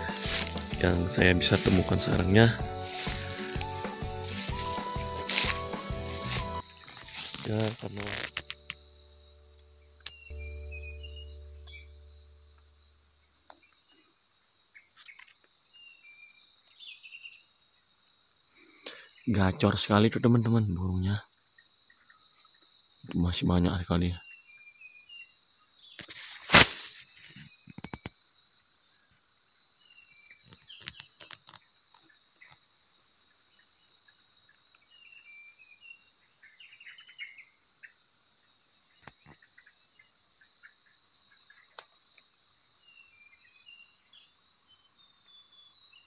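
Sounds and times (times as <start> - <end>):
songbird chirps: 0.0 - 17.5, 29.5 - 32.7, 33.3 - 38.0, 38.9 - 46.0
high-pitched insect chorus: 0.0 - 46.0.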